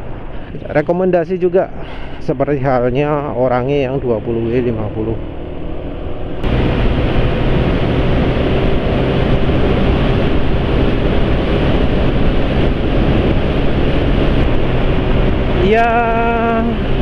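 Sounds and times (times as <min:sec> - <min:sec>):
scooter engine humming: 0:03.8 - 0:17.0
wind rush on microphone: 0:04.6 - 0:17.0.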